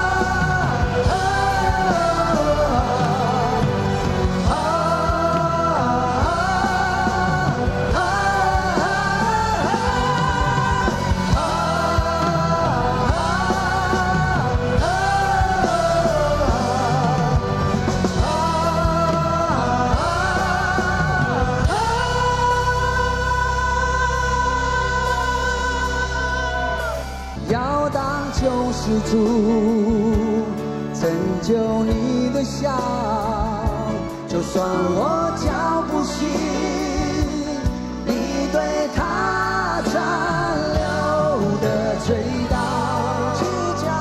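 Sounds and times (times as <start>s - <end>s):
live rock band playing: 0.0s - 44.0s
man singing: 0.0s - 44.0s.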